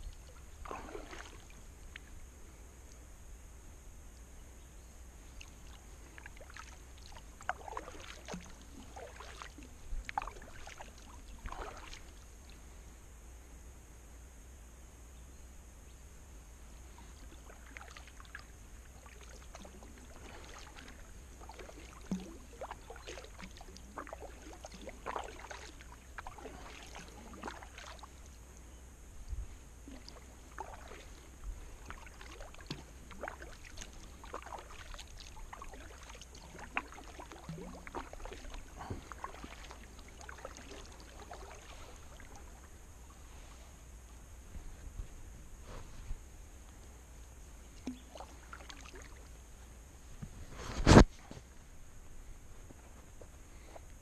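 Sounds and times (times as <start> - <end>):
paddle splashing in water: 0.0 - 2.1, 5.3 - 12.6, 16.9 - 28.5, 29.4 - 43.5, 47.8 - 49.3.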